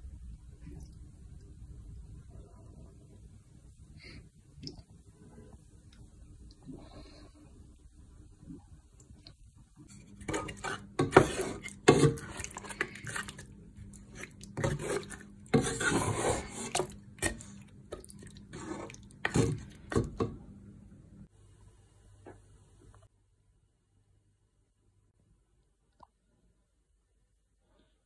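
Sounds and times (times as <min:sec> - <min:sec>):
wooden spatula scraping a pot: 0:09.8 - 0:20.2.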